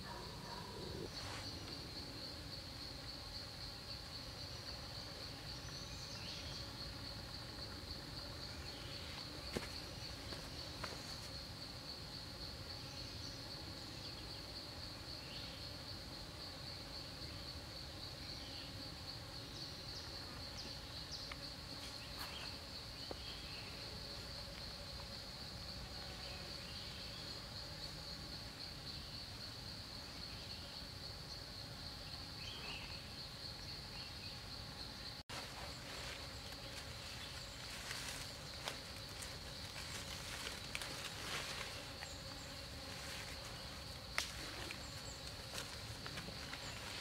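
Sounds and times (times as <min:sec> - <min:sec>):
insects trilling: 0:00.0 - 0:47.0.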